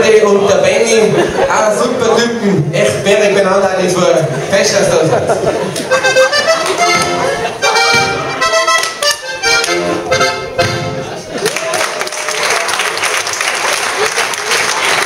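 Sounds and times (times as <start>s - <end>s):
accordion dance tune: 5.4s - 11.3s
audience applause: 11.3s - 15.0s.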